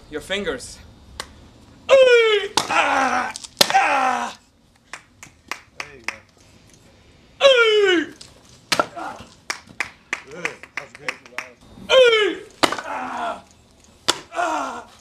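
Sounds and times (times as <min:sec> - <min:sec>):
person shouting kiai: 0:01.9 - 0:04.4, 0:08.8 - 0:09.3, 0:11.9 - 0:13.4
people clapping: 0:04.9 - 0:06.3, 0:09.4 - 0:11.6.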